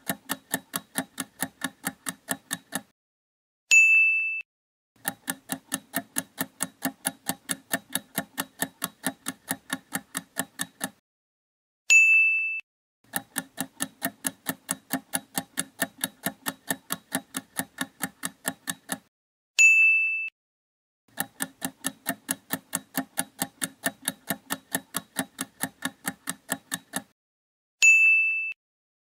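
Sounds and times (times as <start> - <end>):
clock ticking countdown: 0.0 - 2.9, 5.0 - 11.0, 13.1 - 19.1, 21.1 - 27.2
bright bell ding: 27.8 - 28.5.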